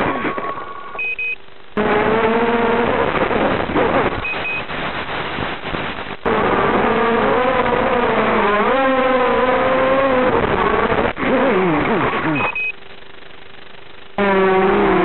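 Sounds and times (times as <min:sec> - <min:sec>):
drone motors whining: 0:00.0 - 0:04.4, 0:06.2 - 0:12.8, 0:14.2 - 0:15.0.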